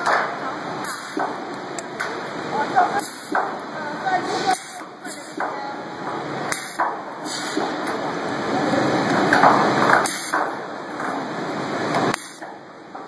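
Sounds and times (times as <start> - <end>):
steady noisy background: 0.0 - 13.0
welding arc crackling hiss: 12.1 - 12.4.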